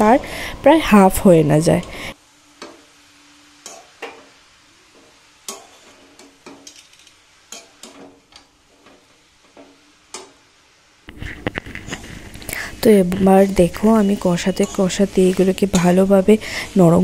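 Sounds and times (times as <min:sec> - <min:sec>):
faint sizzle: 0:00.0 - 0:17.0
spatula scraping a pan: 0:05.0 - 0:06.9, 0:11.1 - 0:12.4, 0:13.4 - 0:16.8.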